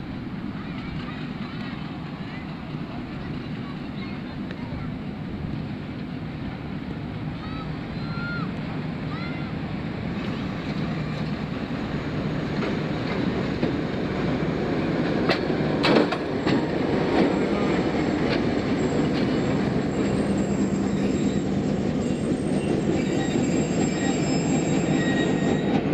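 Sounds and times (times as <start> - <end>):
diesel locomotive engine running: 0.0 - 25.9
wheels clicking over rails: 10.2 - 25.9
faint high wheel squeal: 18.8 - 25.9.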